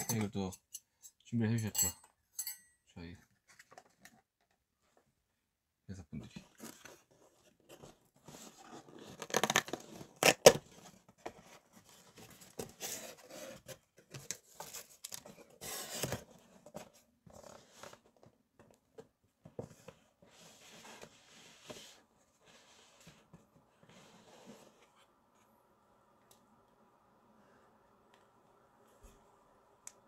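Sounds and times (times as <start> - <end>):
packaging tearing and rustling: 8.7 - 10.8.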